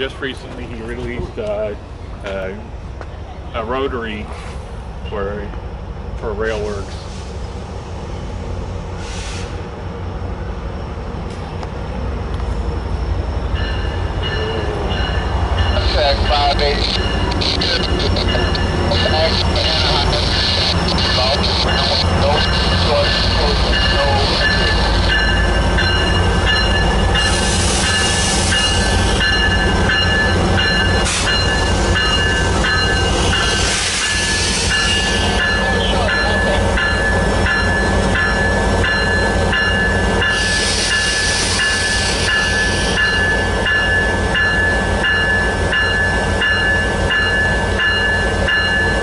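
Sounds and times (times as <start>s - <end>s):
diesel locomotive engine rumble: 0.0s - 49.0s
locomotive bell ringing: 12.9s - 49.0s.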